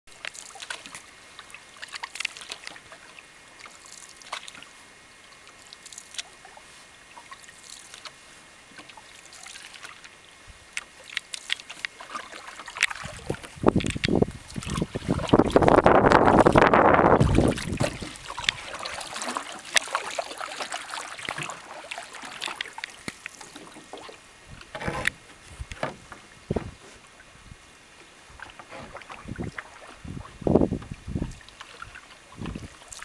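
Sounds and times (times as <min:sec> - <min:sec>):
paddle splashing in water: 0:00.1 - 0:27.3, 0:28.0 - 0:33.0
wind buffeting microphone: 0:13.0 - 0:18.5, 0:29.2 - 0:31.4, 0:32.4 - 0:32.8.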